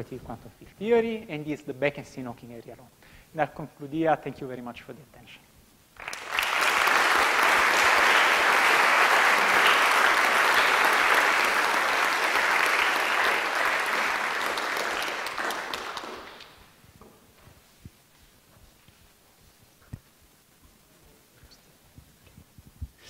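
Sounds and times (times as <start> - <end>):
audience applause: 6.0 - 16.7.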